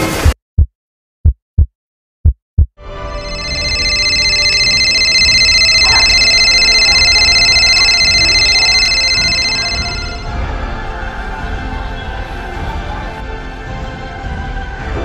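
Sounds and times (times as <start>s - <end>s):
high-pitched ringing tone: 3.0s - 10.3s.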